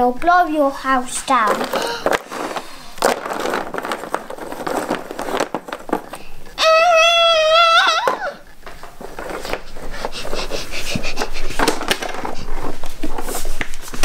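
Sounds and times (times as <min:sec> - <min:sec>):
child huffing and puffing: 0:01.7 - 0:02.2, 0:09.7 - 0:12.8
child howling like a wolf: 0:06.6 - 0:08.5.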